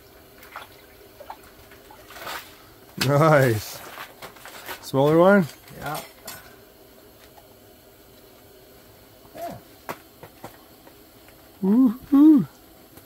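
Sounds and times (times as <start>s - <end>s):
man whooping: 9.3s - 9.7s, 11.6s - 12.6s
short falling vocal sound: 11.6s - 12.5s.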